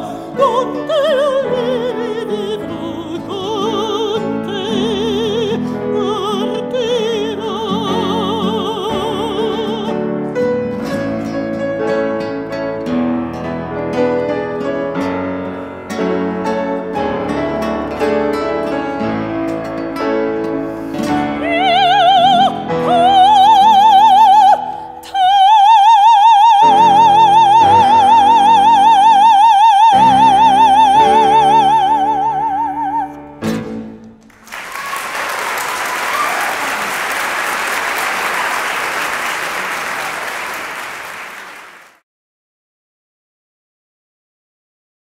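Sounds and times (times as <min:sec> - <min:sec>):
soprano singing: 0:00.0 - 0:10.5, 0:20.9 - 0:33.5
piano and guitar: 0:00.0 - 0:40.9
audience applauding: 0:34.2 - 0:42.0.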